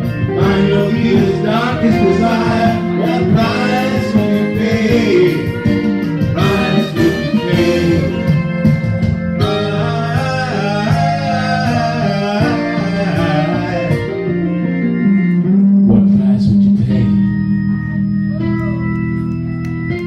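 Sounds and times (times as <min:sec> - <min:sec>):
sustained low notes: 0:00.0 - 0:19.7
guitar accompaniment: 0:00.0 - 0:20.0
man singing into microphone: 0:00.3 - 0:08.7, 0:09.4 - 0:14.5.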